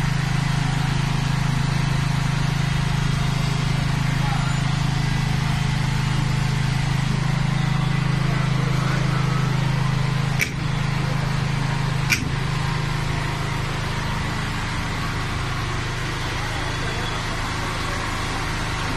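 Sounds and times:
diesel generator droning: 0:00.0 - 0:18.9
short sharp clicks: 0:10.4 - 0:10.6, 0:12.1 - 0:12.4.

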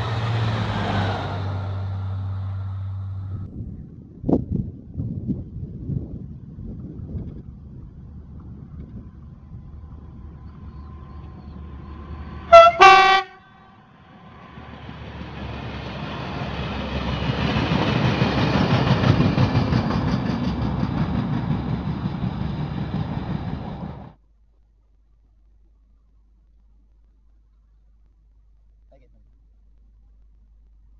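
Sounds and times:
locomotive horn blasts: 0:12.4 - 0:14.3
train wheels rumbling and clattering: 0:13.9 - 0:24.2.

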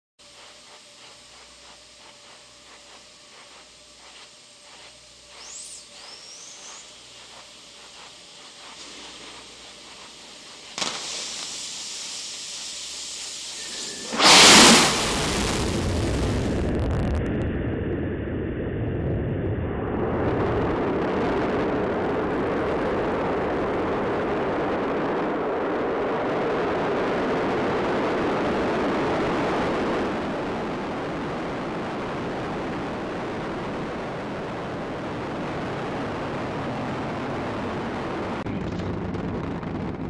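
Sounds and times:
rocket engines roaring: 0:13.5 - 0:16.8.

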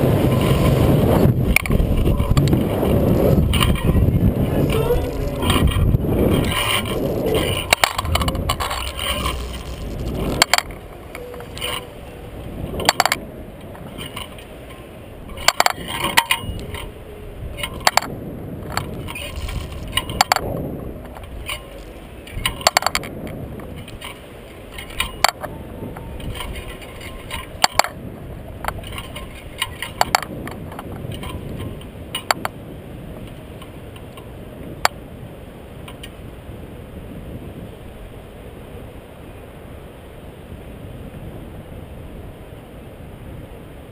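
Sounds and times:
low rumble: 0:00.0 - 0:14.3
wind buffeting camera: 0:00.0 - 0:43.9
metallic clicks and clinks: 0:12.8 - 0:13.2, 0:13.8 - 0:17.0.

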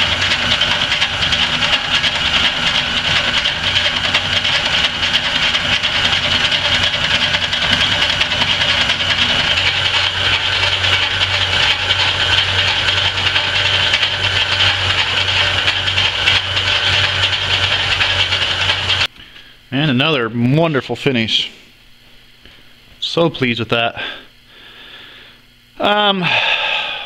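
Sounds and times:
metal lathe humming: 0:00.0 - 0:19.1.

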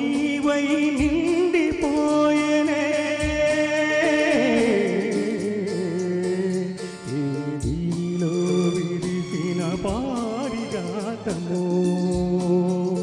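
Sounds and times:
instrumental accompaniment: 0:00.0 - 0:13.0
man singing into a microphone: 0:00.0 - 0:13.0.

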